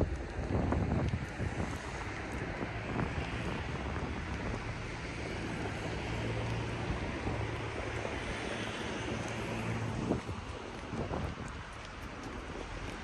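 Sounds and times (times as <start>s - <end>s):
wind on microphone: 0.0s - 13.0s
faint footsteps: 0.1s - 13.0s.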